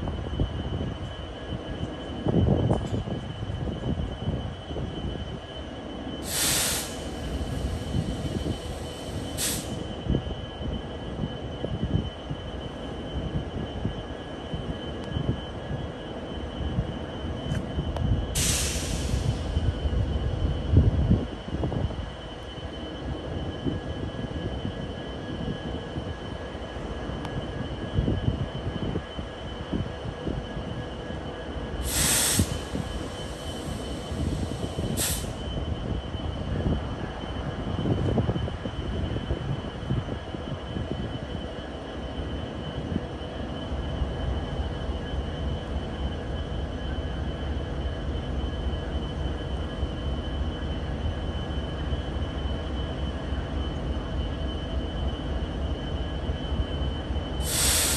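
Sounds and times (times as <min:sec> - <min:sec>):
freight train rumbling: 0:00.0 - 0:57.9
air hiss bursts: 0:06.2 - 0:09.8, 0:18.4 - 0:19.5, 0:31.8 - 0:35.4, 0:57.4 - 0:57.9
short hiss: 0:57.4 - 0:57.9.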